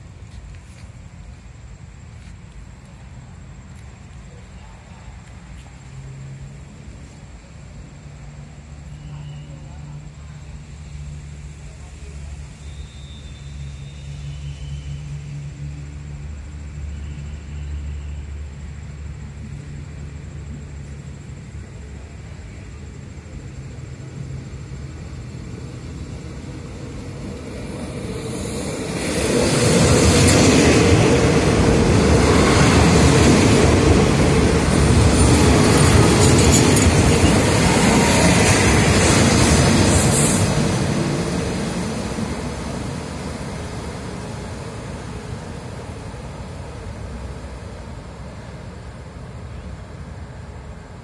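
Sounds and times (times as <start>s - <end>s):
diesel train passing: 0.0s - 51.0s
steel wheels on rails: 26.0s - 48.6s.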